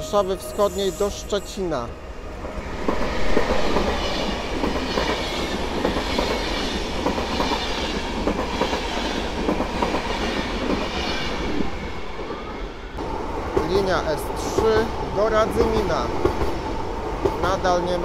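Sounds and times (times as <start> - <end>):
passenger train rumbling past: 0.0 - 18.0.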